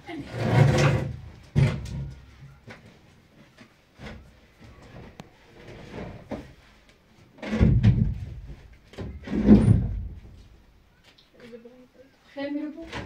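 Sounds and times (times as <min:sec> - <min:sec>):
knocks and thumps: 0:00.4 - 0:02.3, 0:07.4 - 0:10.4.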